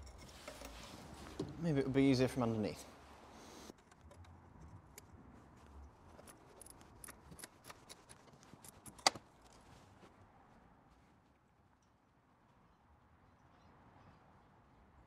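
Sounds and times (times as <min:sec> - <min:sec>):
hand tools clicking and tapping: 0:06.1 - 0:09.6.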